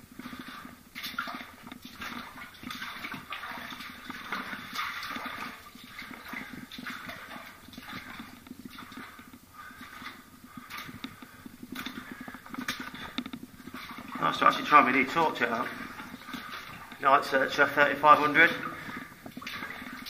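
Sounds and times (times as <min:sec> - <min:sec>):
boots splashing through water: 0:00.0 - 0:20.0.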